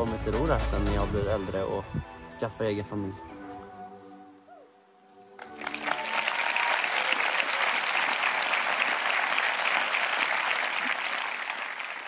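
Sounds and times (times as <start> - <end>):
large audience applauding: 5.4 - 12.0.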